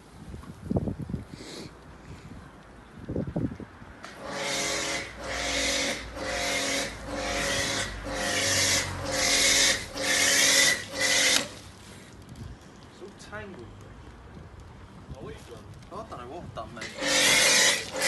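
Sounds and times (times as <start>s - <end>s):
squeaky hand pump strokes: 4.1s - 11.6s, 16.8s - 18.0s.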